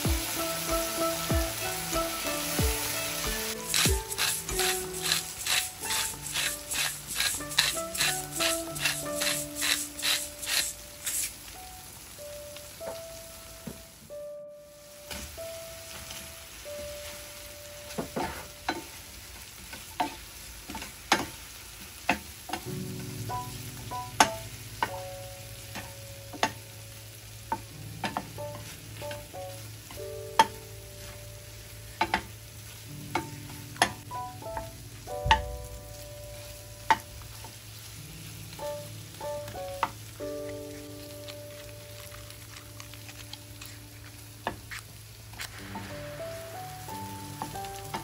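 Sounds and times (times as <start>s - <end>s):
sauce sizzling gently: 0.0s - 48.0s
soft background music: 0.0s - 48.0s
wooden spoon scraping frying pan: 3.4s - 11.4s.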